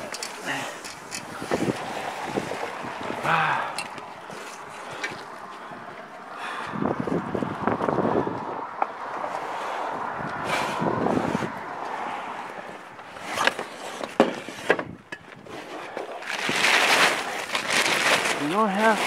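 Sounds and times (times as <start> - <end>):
gusty wind on microphone: 1.0 - 15.7
plastic tarp rustling and flapping: 15.4 - 19.0.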